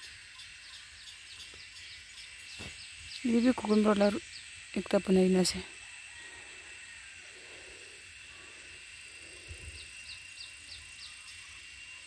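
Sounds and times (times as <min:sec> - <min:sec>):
bird chirping: 0:00.0 - 0:04.6, 0:09.6 - 0:12.0
insects droning: 0:00.0 - 0:12.0.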